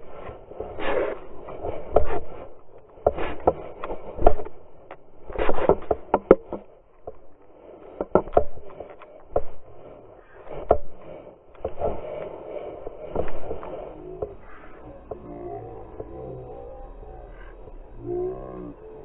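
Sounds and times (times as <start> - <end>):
muffled knocks and thumps: 1.2 - 12.0, 12.9 - 16.2.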